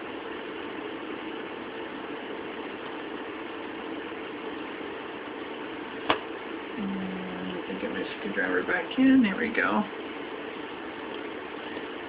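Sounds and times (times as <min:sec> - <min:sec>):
electronic equipment hum and hiss: 0:00.0 - 0:12.0.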